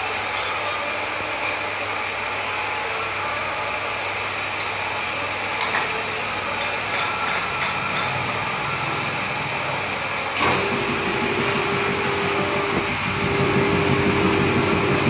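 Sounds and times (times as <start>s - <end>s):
pipe bending machine running: 0.0s - 15.0s.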